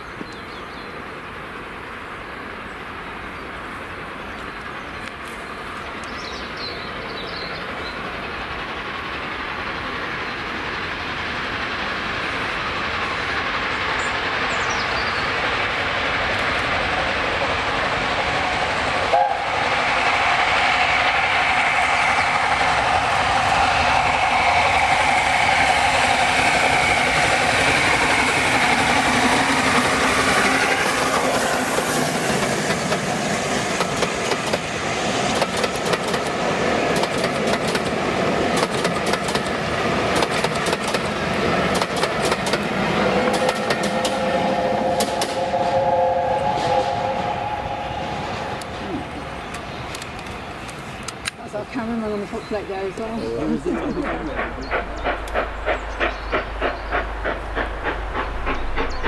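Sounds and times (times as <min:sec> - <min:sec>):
steam locomotive running: 0:00.0 - 0:59.0
locomotive whistle: 0:19.1 - 0:31.5, 0:42.9 - 0:49.1.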